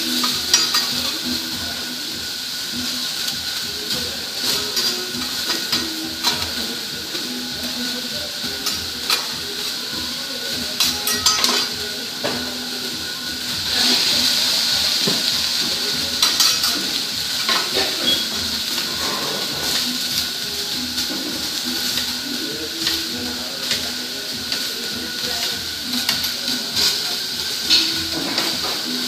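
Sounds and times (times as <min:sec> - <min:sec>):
food sizzling on griddle: 0:00.0 - 0:29.0
metal spatula scraping griddle: 0:16.2 - 0:20.0.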